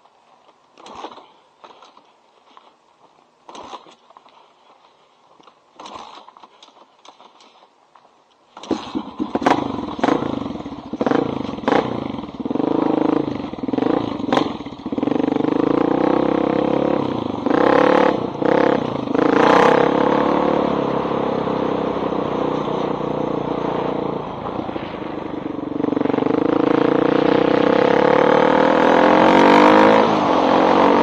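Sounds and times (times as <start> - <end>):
motorcycle engine starting and revving: 0.8 - 2.0, 3.5 - 4.0, 8.6 - 31.0.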